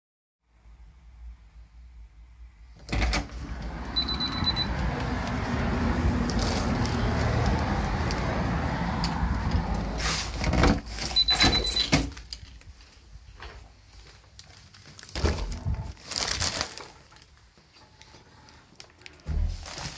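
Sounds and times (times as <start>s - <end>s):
street traffic rumble: 0.7s - 13.3s
door unlatching and opening: 2.8s - 4.0s.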